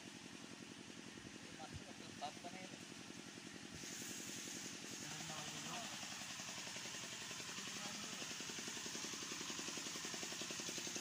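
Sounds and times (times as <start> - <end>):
small engine running: 0.0 - 11.0
high hiss: 3.8 - 10.3.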